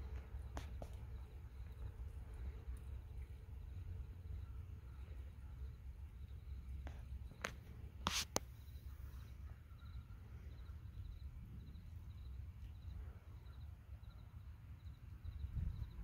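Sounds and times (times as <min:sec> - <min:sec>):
insect chirping: 0:00.0 - 0:16.0
wind rumble on microphone: 0:15.2 - 0:16.0.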